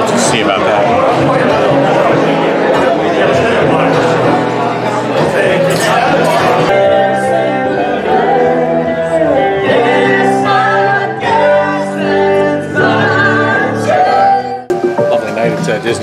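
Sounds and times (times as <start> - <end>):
live band playing: 14.7 - 16.0.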